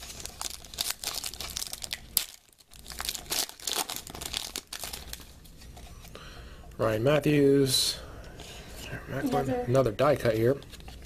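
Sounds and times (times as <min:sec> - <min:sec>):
foil wrapper crinkling and tearing: 0:00.0 - 0:05.3.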